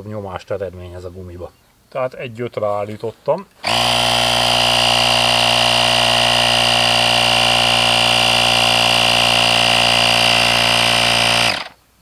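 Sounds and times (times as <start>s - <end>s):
tyre compressor droning: 3.6s - 11.8s.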